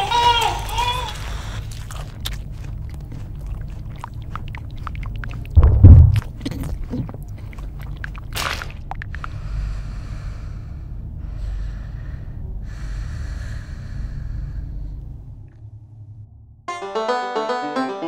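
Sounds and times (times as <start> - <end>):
wet chewing and squelching: 0.0 - 9.4
heavy low thump: 5.6 - 6.5.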